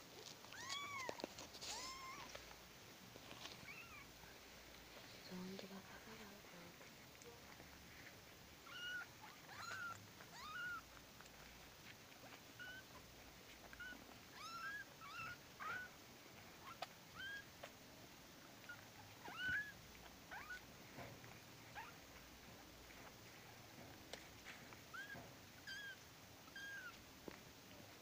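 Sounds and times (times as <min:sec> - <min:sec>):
kittens mewing: 0:00.4 - 0:02.4, 0:03.6 - 0:04.2, 0:08.6 - 0:11.4, 0:12.2 - 0:16.0, 0:16.6 - 0:17.5, 0:18.6 - 0:20.7, 0:24.9 - 0:27.0.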